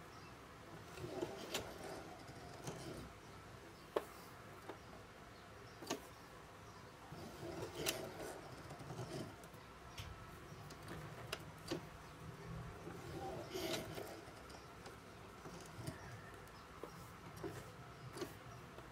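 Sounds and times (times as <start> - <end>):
sewing machine needle clicks: 5.8 - 6.1, 7.2 - 9.4, 12.8 - 16.6.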